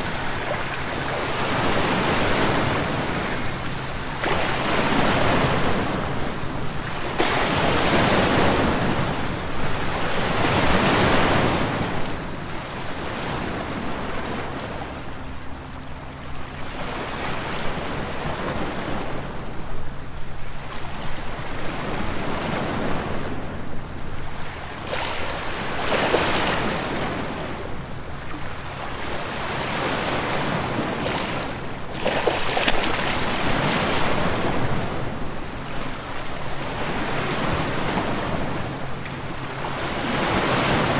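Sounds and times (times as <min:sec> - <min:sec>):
sea waves washing: 0:24.3 - 0:40.9.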